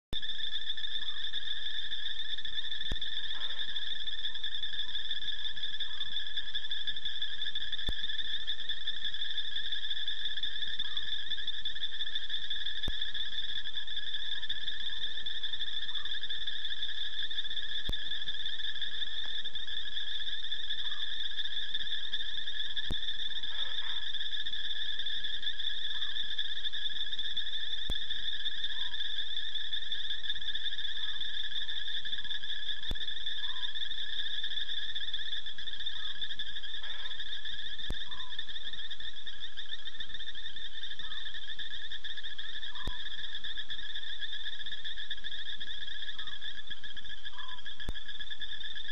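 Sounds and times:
insects and frogs trilling: 0:00.1 - 0:48.9.

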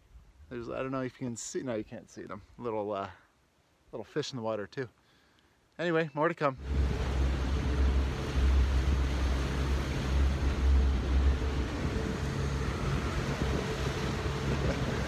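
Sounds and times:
rush of water: 0:06.5 - 0:15.0
outboard motor droning: 0:06.6 - 0:15.0.

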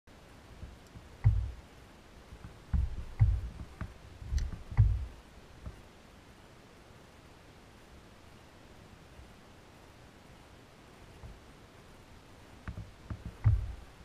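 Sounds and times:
dull knocks in plastic kayak: 0:00.6 - 0:01.6, 0:02.4 - 0:05.1, 0:12.7 - 0:13.8.

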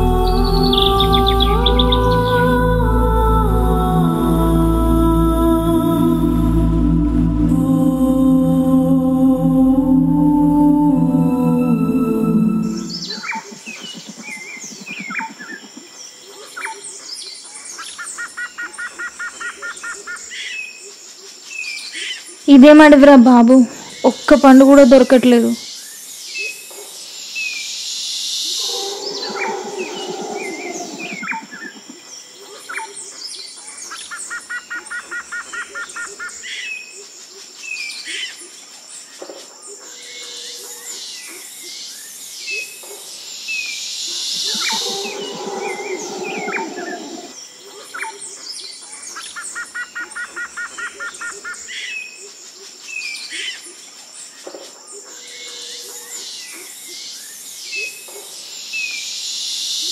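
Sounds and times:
birds chirping and calling: 0:00.0 - 0:02.4, 0:28.5 - 0:36.9, 0:43.6 - 0:52.1
bird rapid trill: 0:44.3 - 0:47.4.

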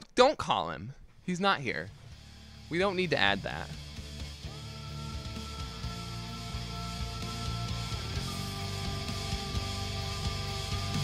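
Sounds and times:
music with steady beat and chords: 0:03.7 - 0:11.0.

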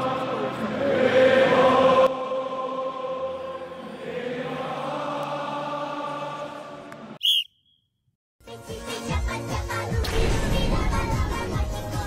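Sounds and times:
choir singing: 0:00.0 - 0:07.2.

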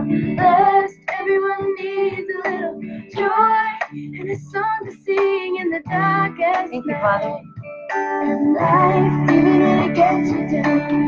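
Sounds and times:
woman singing: 0:00.0 - 0:07.5, 0:08.2 - 0:11.0
instrumental accompaniment: 0:05.2 - 0:11.0.

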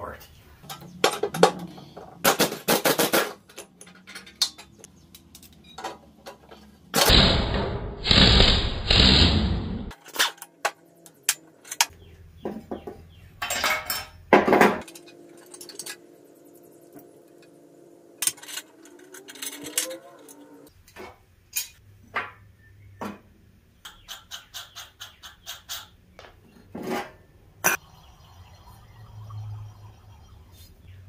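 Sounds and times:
metal parts clinking and knocking: 0:03.0 - 0:06.7, 0:13.4 - 0:16.1, 0:18.2 - 0:20.4.

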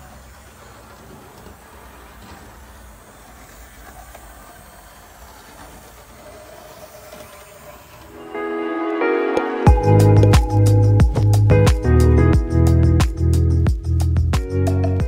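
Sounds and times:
model train motor whirring: 0:00.0 - 0:08.2
wheels clicking on rails: 0:00.0 - 0:15.0.

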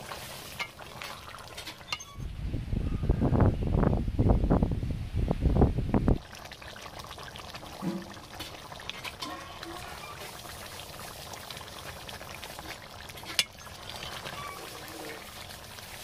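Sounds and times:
curry bubbling: 0:00.0 - 0:02.2, 0:06.1 - 0:16.0
metal ladle scraping a pan: 0:00.0 - 0:02.3, 0:07.8 - 0:10.6, 0:12.6 - 0:16.0.

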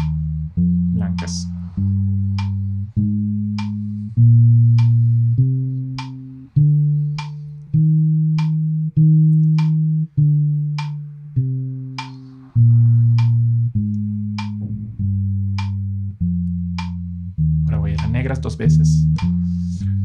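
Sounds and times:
bass guitar playing scale: 0:00.0 - 0:20.0
metronome click: 0:02.3 - 0:12.5, 0:13.1 - 0:14.6, 0:15.5 - 0:19.4.

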